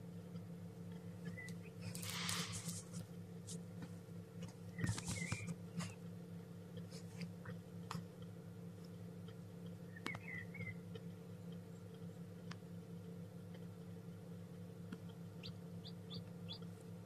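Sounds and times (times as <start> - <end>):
steady low hum: 0.0 - 17.0
chicks peeping: 1.2 - 2.8, 4.6 - 6.0, 9.6 - 12.3, 14.9 - 17.0
rustling in wood shavings: 1.8 - 3.0.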